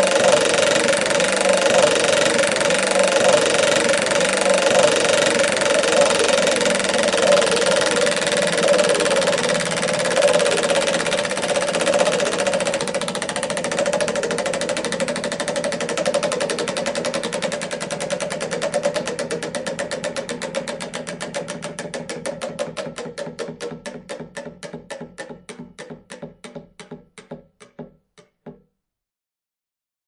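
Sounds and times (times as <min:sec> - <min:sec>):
prize wheel pointer clicking: 0:00.0 - 0:28.4.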